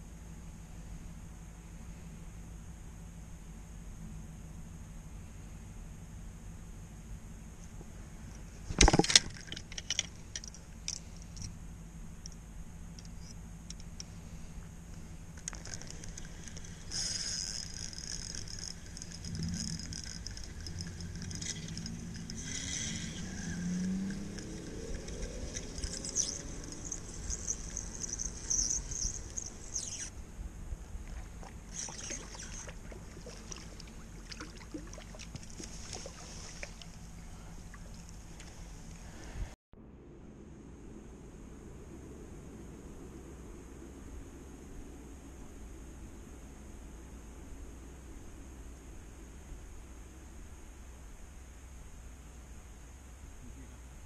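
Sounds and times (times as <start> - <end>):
steady low rumble: 0.0 - 54.0
fishing reel clicking and rattling: 8.8 - 11.5, 15.4 - 30.1
fish splashing in water: 31.1 - 37.0.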